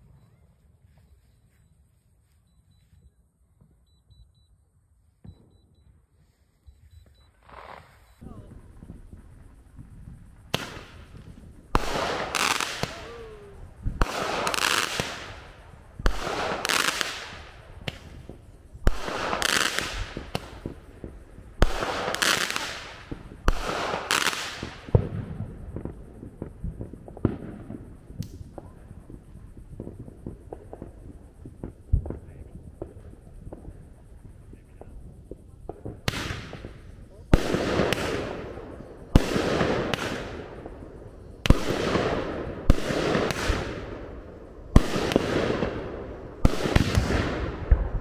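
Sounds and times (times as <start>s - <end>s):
firework shots with hissing tail: 7.3s - 48.0s
crackling pops: 7.4s - 25.1s, 25.7s - 28.8s.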